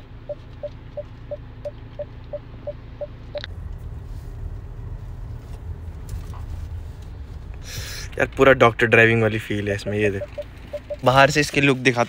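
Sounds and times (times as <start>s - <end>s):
parking sensor beeping: 0.0s - 3.5s, 9.3s - 11.4s
low rumble in car cabin: 0.0s - 12.0s.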